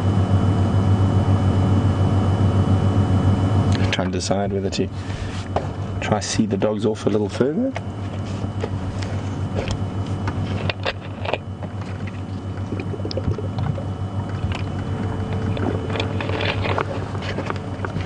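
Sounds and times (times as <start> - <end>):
vehicle engine idling: 11.6 - 18.0.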